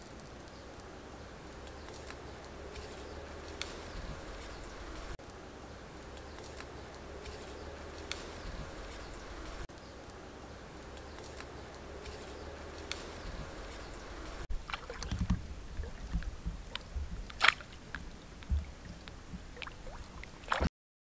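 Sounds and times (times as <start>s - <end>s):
outdoor background hiss: 0.0s - 20.7s
water sloshing and splashing: 11.9s - 20.7s.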